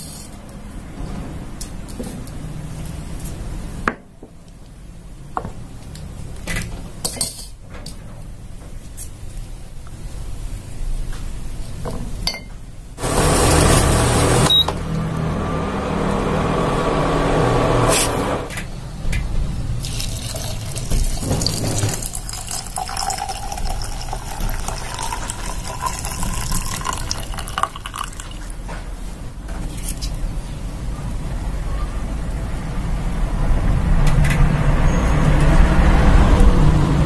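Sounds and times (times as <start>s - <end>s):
light glass clinks: 12.2s - 12.6s
water pouring into glass jug: 19.8s - 28.6s.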